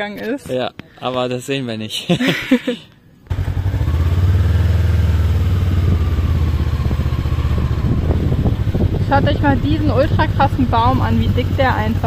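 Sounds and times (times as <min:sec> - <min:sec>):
motorbike engine running: 0:03.3 - 0:12.0.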